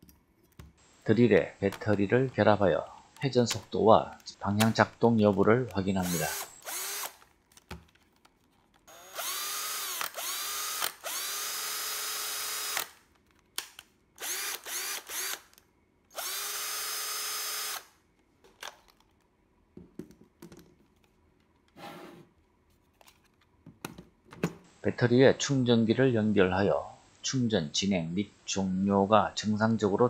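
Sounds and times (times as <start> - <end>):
cordless drill motor whining: 6.0 - 7.2, 8.9 - 13.0, 14.2 - 17.9.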